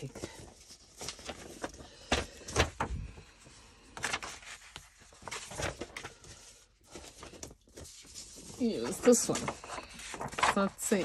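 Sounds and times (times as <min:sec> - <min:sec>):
paper rustling and sliding: 0:00.0 - 0:11.0.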